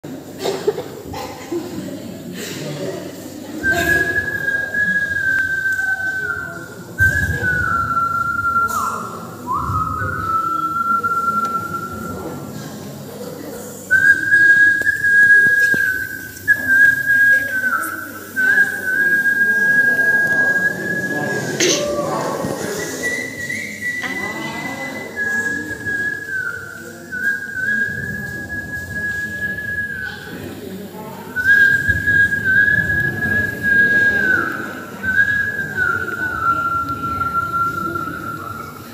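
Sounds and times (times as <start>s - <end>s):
breath: 2.4s - 2.8s
man whistling a slow tune: 3.6s - 12.6s, 13.9s - 30.4s, 31.4s - 38.9s.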